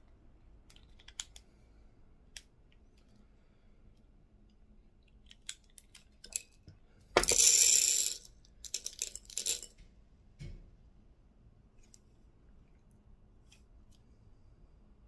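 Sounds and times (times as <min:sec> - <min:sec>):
shot pellets rattling into dish: 0:07.2 - 0:09.7.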